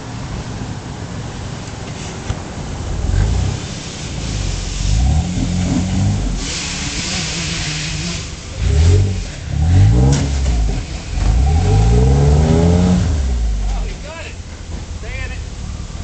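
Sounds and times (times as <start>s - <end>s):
engine revving: 2.8s - 14.1s.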